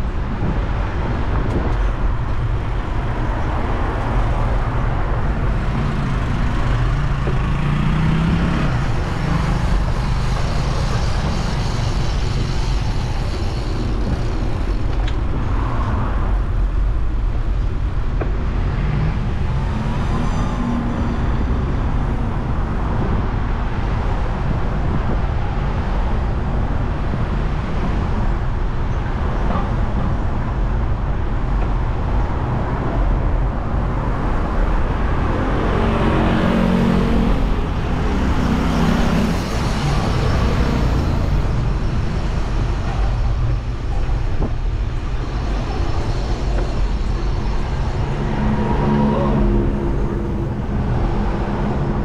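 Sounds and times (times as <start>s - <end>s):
road traffic rumble: 0.0s - 52.0s
passing vehicle engine: 4.9s - 14.2s, 33.6s - 43.4s, 45.2s - 52.0s.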